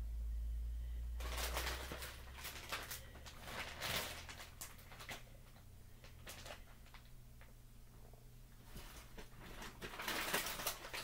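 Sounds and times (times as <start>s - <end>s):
plastic bag crinkling: 1.2s - 7.5s, 8.6s - 11.0s.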